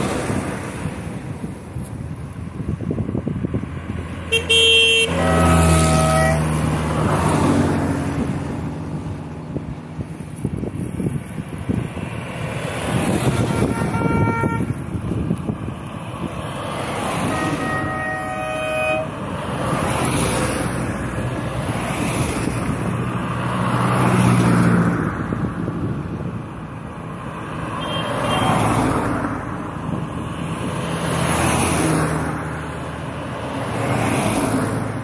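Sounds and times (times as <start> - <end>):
cars driving past: 0.0 - 35.0
car horn tooting: 4.3 - 6.5, 13.2 - 14.8, 17.2 - 19.2, 27.8 - 28.7.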